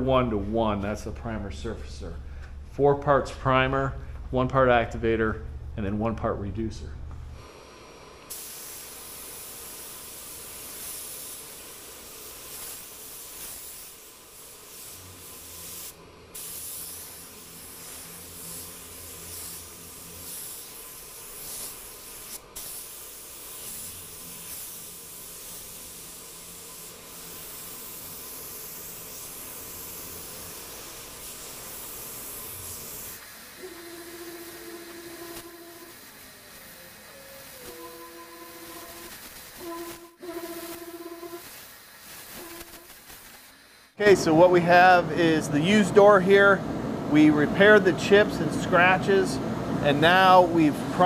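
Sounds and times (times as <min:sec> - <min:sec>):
spray gun air hiss: 0:07.4 - 0:45.4.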